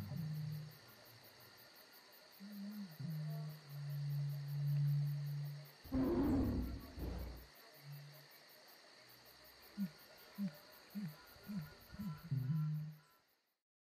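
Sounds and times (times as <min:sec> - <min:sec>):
insect chirring: 0:00.0 - 0:13.4
low animal call: 0:02.6 - 0:07.5
short low calls: 0:05.9 - 0:07.4
deep animal roar: 0:05.9 - 0:07.5.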